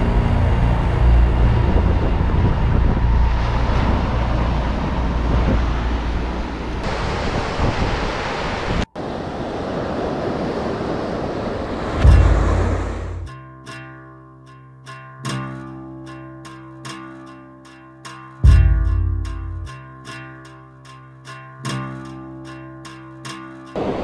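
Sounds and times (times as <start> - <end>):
heavy low rumble: 0.0 - 7.2, 11.9 - 13.3, 18.4 - 19.7
ocean surf on rocky shore: 0.0 - 13.3, 22.8 - 24.0
wind buffeting microphone: 0.0 - 13.3.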